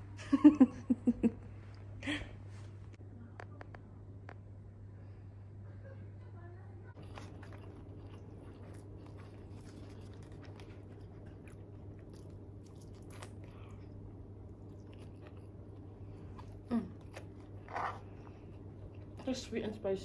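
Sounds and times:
steady low hum: 0:00.0 - 0:20.0
person chewing food: 0:07.0 - 0:19.3.

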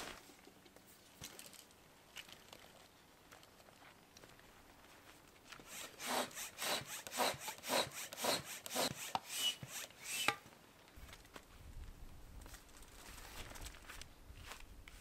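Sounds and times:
hand air pump strokes: 0:05.5 - 0:10.4.

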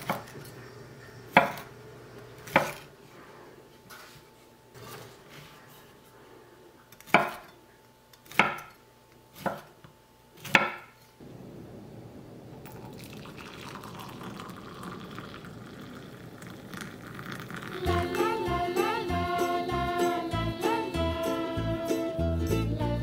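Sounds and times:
knife chopping on wooden board: 0:02.5 - 0:02.8, 0:07.0 - 0:07.5, 0:08.2 - 0:08.7, 0:09.4 - 0:09.8, 0:10.4 - 0:10.9
coffee pouring into mug: 0:12.4 - 0:18.1.

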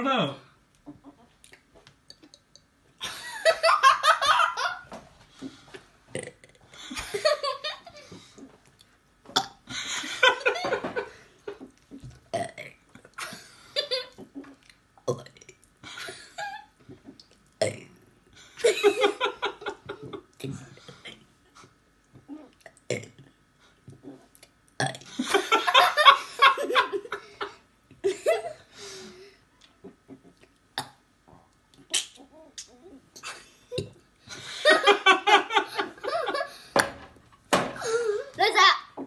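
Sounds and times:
child burping: 0:06.2 - 0:06.6, 0:12.3 - 0:12.7.

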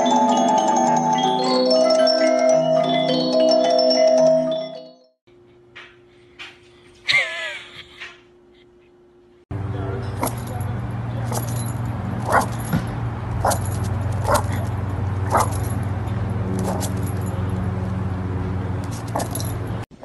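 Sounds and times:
steady low hum: 0:05.3 - 0:19.9
dog barking: 0:10.2 - 0:10.5, 0:11.2 - 0:12.7, 0:13.4 - 0:15.7, 0:16.6 - 0:17.0, 0:19.0 - 0:19.4.

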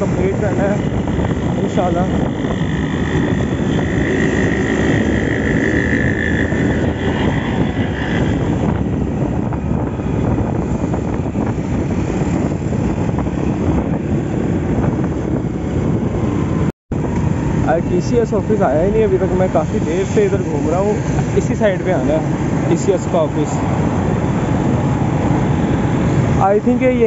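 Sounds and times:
motorcycle engine running: 0:00.0 - 0:17.8
wind on microphone: 0:00.0 - 0:27.0.

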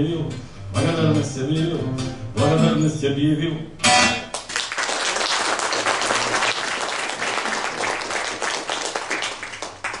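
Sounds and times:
audience applauding: 0:04.3 - 0:10.0.

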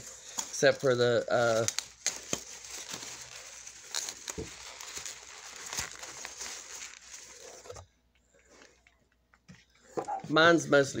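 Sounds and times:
packing peanuts rustling: 0:00.0 - 0:07.8.

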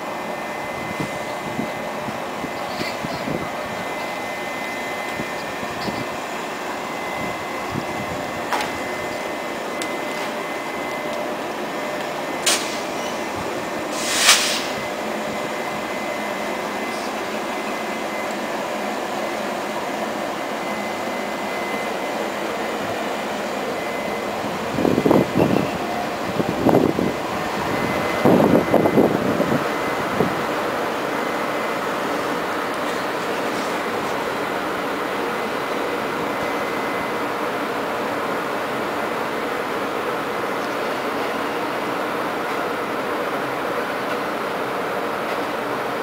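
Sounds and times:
electric locomotive mechanical whir: 0:00.0 - 0:46.0
short air hisses: 0:12.4 - 0:13.2, 0:13.9 - 0:14.8.

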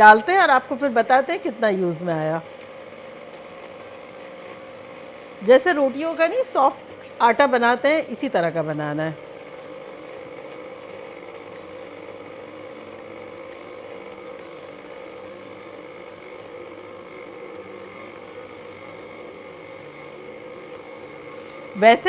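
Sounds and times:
stand mixer running: 0:00.0 - 0:22.0.

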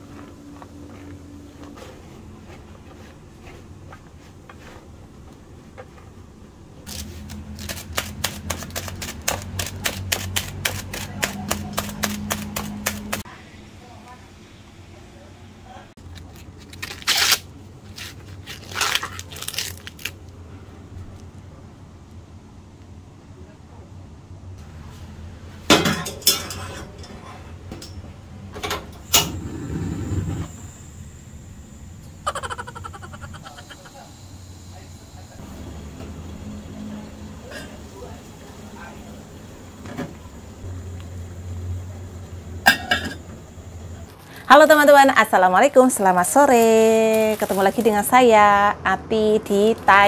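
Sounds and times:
metal pot clanking on grate: 0:25.7 - 0:28.0, 0:42.7 - 0:43.3
gas burner rushing: 0:27.8 - 0:32.2.

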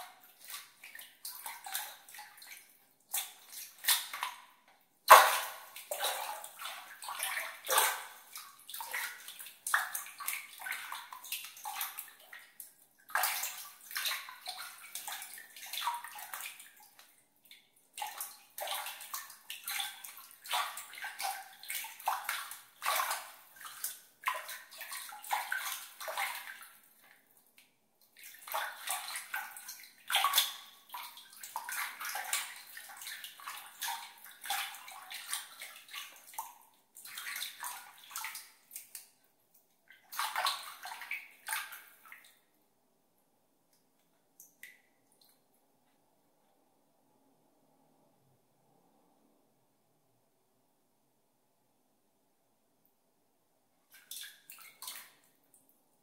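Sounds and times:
water splashing: 0:05.1 - 0:12.2, 0:18.0 - 0:26.7.

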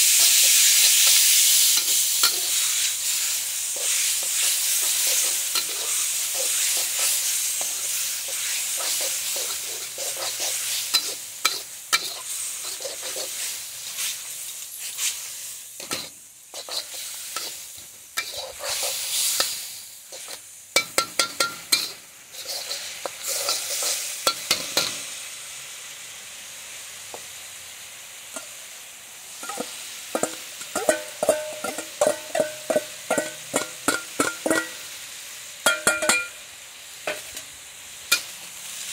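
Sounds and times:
noodles sizzling in a wok: 0:00.0 - 0:38.9
metal spatula scraping pan: 0:03.7 - 0:14.1, 0:15.8 - 0:24.9
spoon clinking metal bowl: 0:29.4 - 0:34.7, 0:35.6 - 0:36.4.

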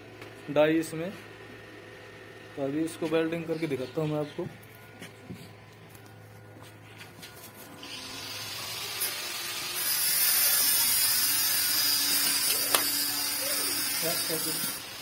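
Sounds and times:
welding arc crackling and hissing: 0:07.8 - 0:15.0.

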